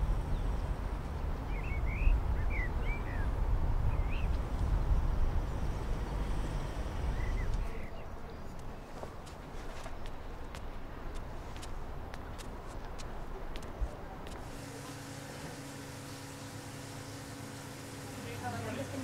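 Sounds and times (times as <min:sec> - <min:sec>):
bird chirps: 0:01.5 - 0:03.3.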